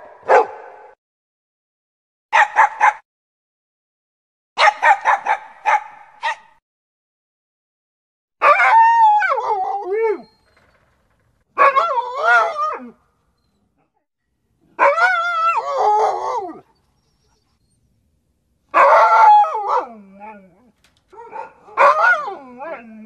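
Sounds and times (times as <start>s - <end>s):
dog howling: 8.4s - 10.4s, 11.6s - 13.0s, 14.8s - 17.7s, 18.8s - 23.0s.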